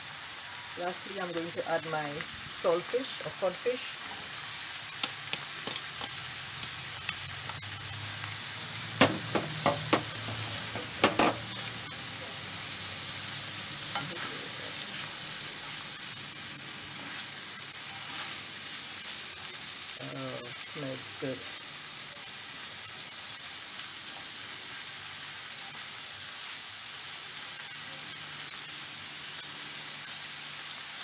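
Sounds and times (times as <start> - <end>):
food sizzling in a frying pan: 0.0 - 31.0
spatula knocking against pan: 9.0 - 10.1, 10.8 - 11.4.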